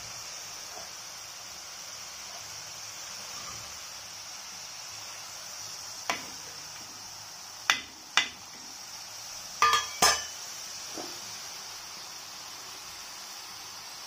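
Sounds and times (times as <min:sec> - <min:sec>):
oil sizzling while deep-frying: 0:00.0 - 0:14.0
metal utensil clinking on pan: 0:09.6 - 0:10.4.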